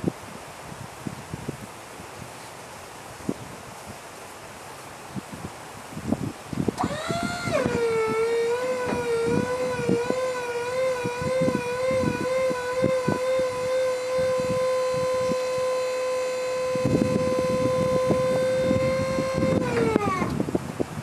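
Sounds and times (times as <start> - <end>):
hydraulic pump whining: 6.7 - 20.5.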